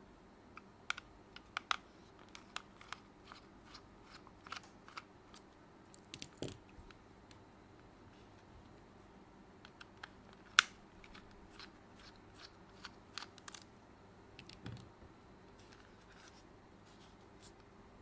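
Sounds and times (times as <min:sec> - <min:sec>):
plastic clicks and snaps: 0:00.6 - 0:03.0.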